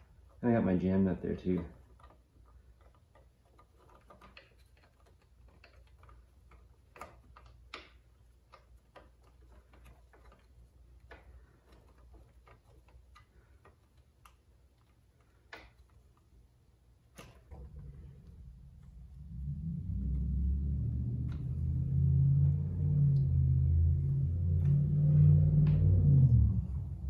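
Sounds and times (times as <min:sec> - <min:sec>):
low room hum: 0:00.0 - 0:27.0
small metallic clicks: 0:01.2 - 0:19.4.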